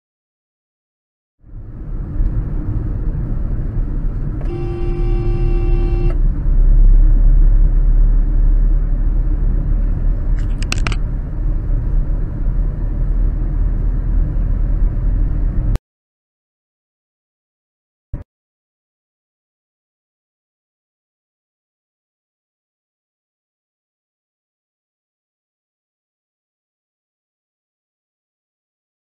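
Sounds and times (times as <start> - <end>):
road and engine rumble: 1.4 - 15.8
short high horn toot: 4.4 - 6.2
vehicle horn: 4.4 - 6.2.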